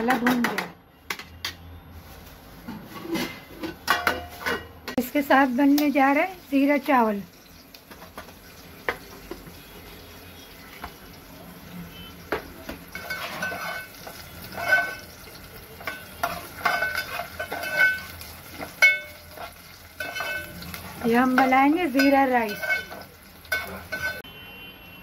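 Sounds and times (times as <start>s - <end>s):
onions sizzling: 5.0s - 24.2s
spatula scraping metal pot: 12.9s - 15.2s, 15.8s - 24.2s.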